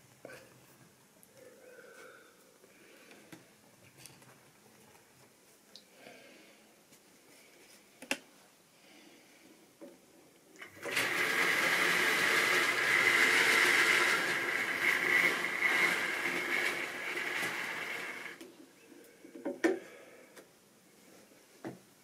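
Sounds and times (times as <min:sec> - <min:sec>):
small electric motor whirring: 0:10.8 - 0:18.4.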